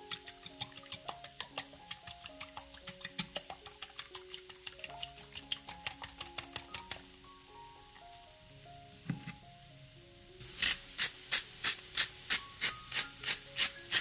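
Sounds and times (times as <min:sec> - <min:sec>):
cooking utensil working food: 0:00.0 - 0:07.1, 0:10.4 - 0:14.0
soft melodic background music: 0:00.0 - 0:14.0.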